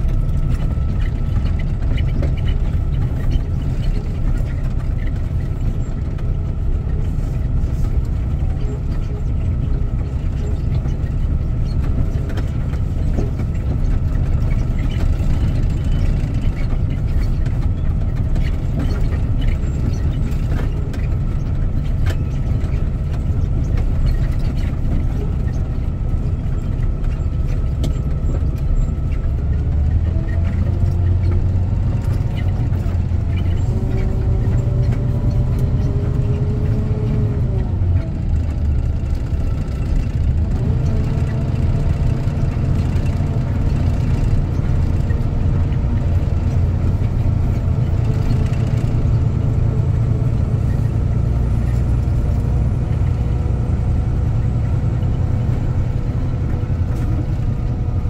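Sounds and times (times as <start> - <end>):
truck diesel engine rumble: 0.0 - 58.0.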